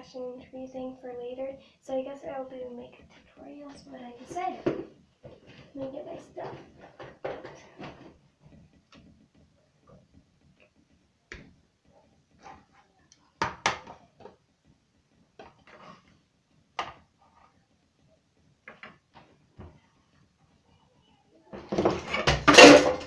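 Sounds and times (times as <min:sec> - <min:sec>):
small objects knocking and clattering: 0:04.6 - 0:11.6, 0:15.3 - 0:17.7, 0:18.6 - 0:19.8, 0:21.5 - 0:23.0.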